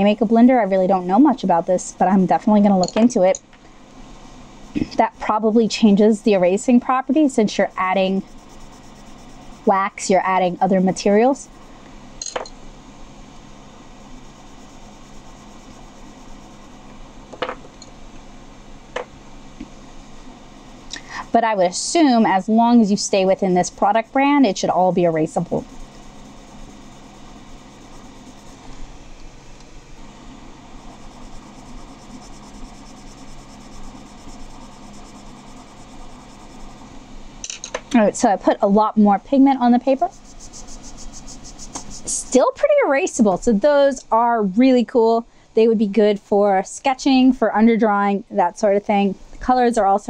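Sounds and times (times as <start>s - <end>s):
low electrical hum: 0.0s - 50.0s
pencil scribbling on paper: 6.9s - 11.4s, 21.8s - 28.7s, 30.8s - 36.8s, 40.0s - 42.3s.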